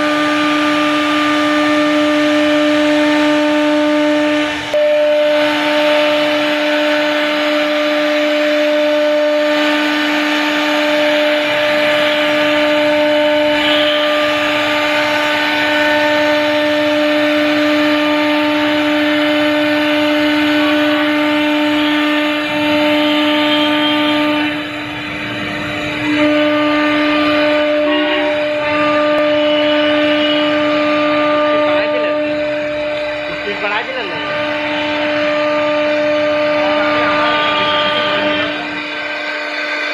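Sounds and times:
router spindle high whine: 0:00.0 - 0:39.9.

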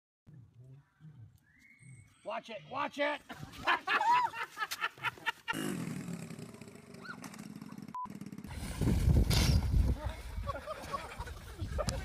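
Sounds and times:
person laughing: 0:03.2 - 0:05.7, 0:10.2 - 0:12.0
small motorcycle engine running: 0:05.5 - 0:10.4.

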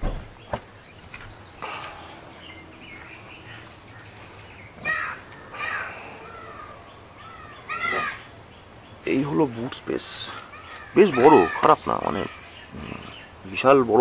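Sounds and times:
crow cawing: 0:01.6 - 0:08.4, 0:10.3 - 0:12.5.

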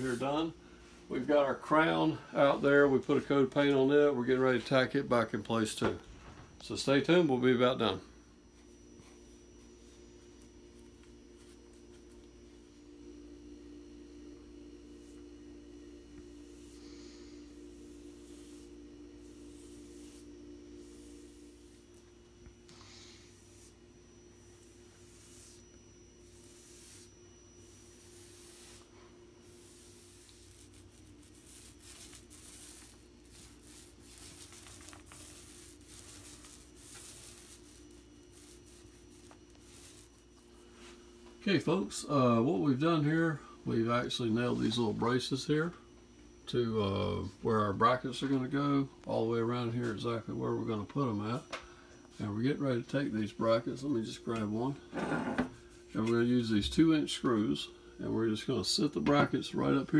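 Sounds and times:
paintbrush strokes on wood: 0:00.0 - 0:03.8, 0:08.5 - 0:12.6, 0:14.8 - 0:22.1, 0:22.8 - 0:41.3
low electrical hum: 0:00.0 - 0:59.9.

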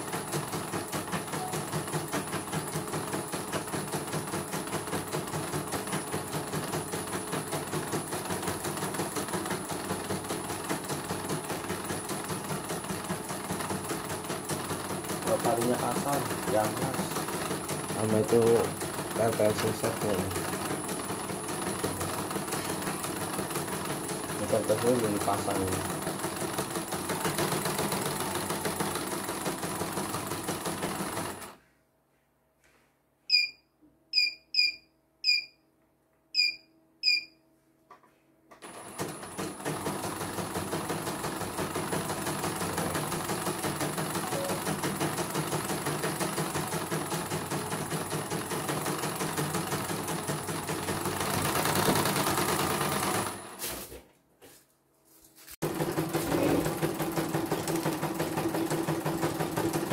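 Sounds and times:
embroidery machine stitching: 0:00.0 - 0:31.6, 0:38.6 - 0:53.6, 0:55.6 - 0:59.9
short electronic beeps: 0:33.3 - 0:35.6, 0:36.4 - 0:37.4.

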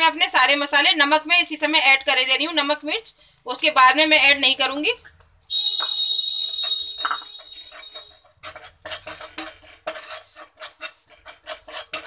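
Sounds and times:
high whistling tone: 0:05.5 - 0:08.2
wooden spatula scraping pan: 0:06.3 - 0:12.0.

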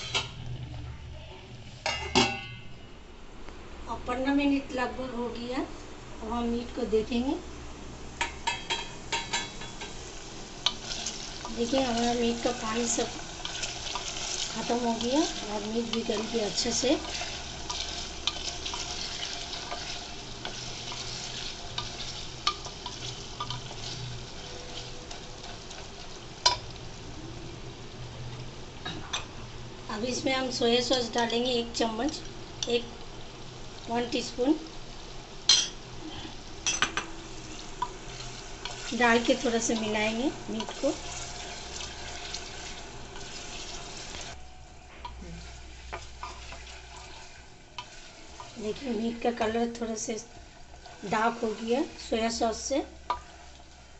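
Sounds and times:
meat sizzling in a pot: 0:06.2 - 0:53.9
wooden spatula scraping: 0:10.7 - 0:25.9, 0:45.2 - 0:49.9.

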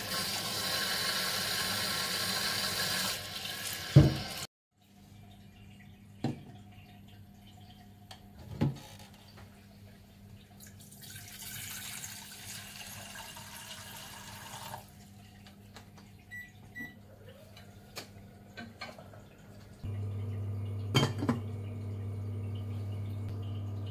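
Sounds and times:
water pouring into saucepan: 0:10.6 - 0:15.0.

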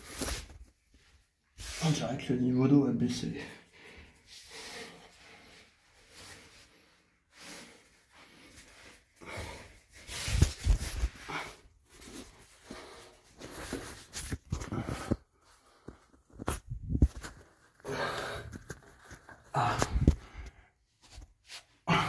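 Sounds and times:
person breathing: 0:03.5 - 0:11.8, 0:17.8 - 0:18.8
knocks and rubbing on microphone: 0:10.3 - 0:11.1, 0:16.2 - 0:17.6.

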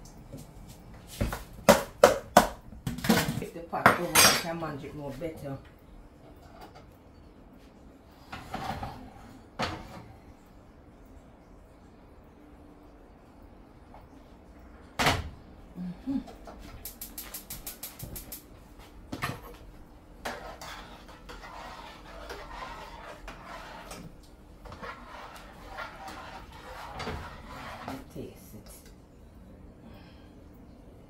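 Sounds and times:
pot and utensils clattering: 0:02.9 - 0:04.9.

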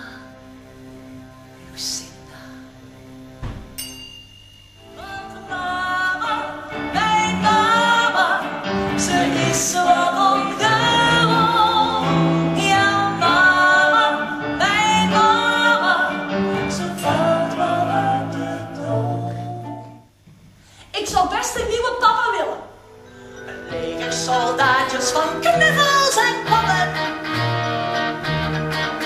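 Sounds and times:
electric guitar: 0:23.2 - 0:29.0
live band music: 0:23.2 - 0:29.0.

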